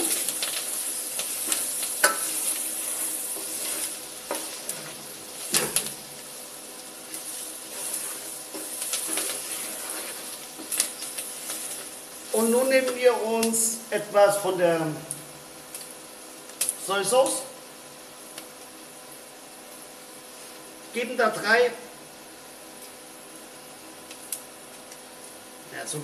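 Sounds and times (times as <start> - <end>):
meat sizzling in a pot: 0.0 - 26.0
wooden spoon scraping pot: 1.5 - 5.6, 7.1 - 12.0.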